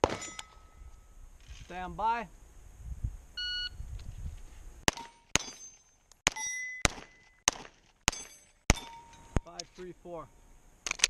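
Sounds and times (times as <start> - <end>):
pistol shots: 0.0 - 0.5, 4.9 - 9.0
steel targets clanging: 0.0 - 0.9, 4.9 - 7.4, 8.1 - 9.9.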